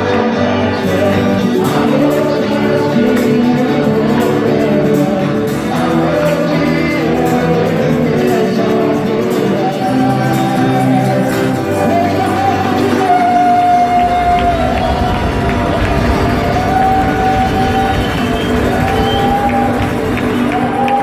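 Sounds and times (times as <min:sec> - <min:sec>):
worship music with singing: 0:00.0 - 0:21.0.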